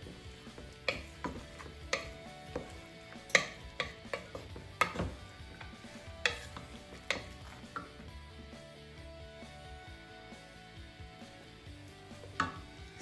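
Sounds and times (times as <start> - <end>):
wooden spoon knocking metal pot: 0.0 - 8.1, 12.2 - 12.7
spoon scraping pot: 0.1 - 8.1.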